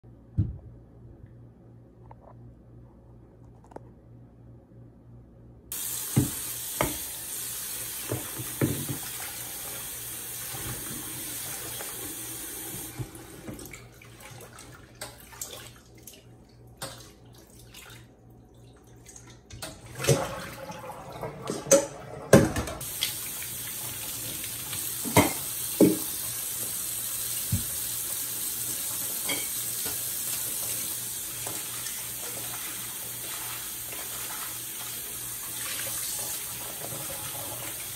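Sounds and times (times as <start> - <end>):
tap running into a sink: 5.8 - 7.2, 7.9 - 9.4, 10.4 - 13.7, 21.3 - 31.8.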